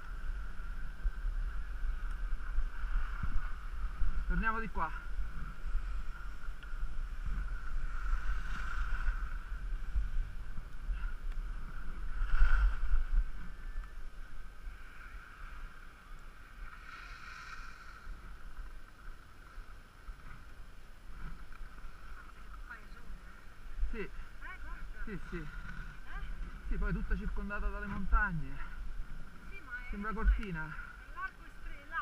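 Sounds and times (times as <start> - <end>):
wind rumbling on microphone: 0.0 - 32.0.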